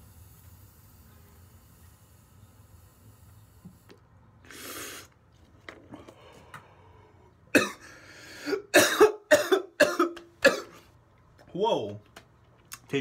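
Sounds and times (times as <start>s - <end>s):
man breathing out: 5.9s - 8.6s
man coughing hard: 7.5s - 10.8s.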